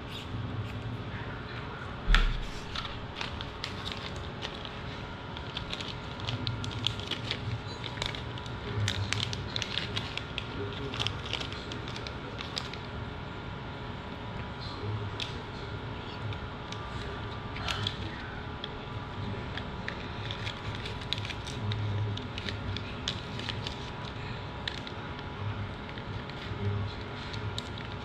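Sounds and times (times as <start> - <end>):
plastic bag crinkling: 2.1 - 12.9, 19.6 - 24.9.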